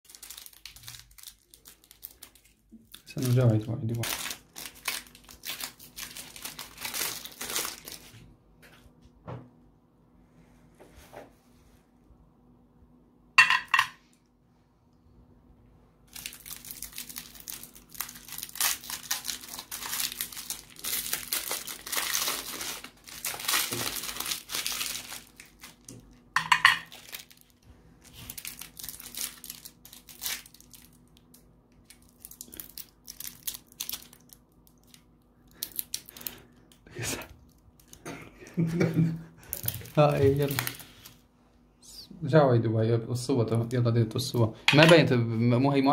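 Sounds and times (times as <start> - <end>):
plastic wrapper crinkling: 0.1 - 8.3, 16.0 - 38.0, 39.4 - 41.2.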